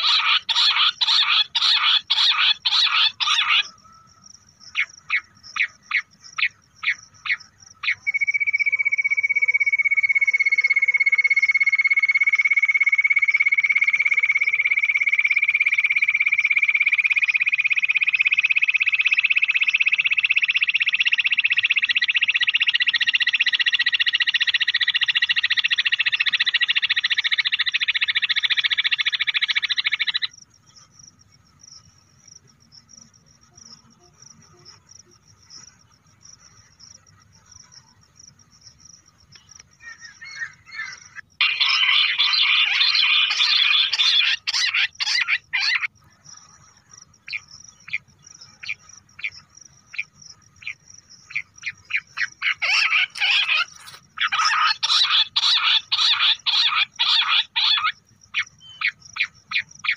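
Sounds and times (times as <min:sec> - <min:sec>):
quail call: 0:00.0 - 0:04.1, 0:39.8 - 0:45.9, 0:50.0 - 0:59.9.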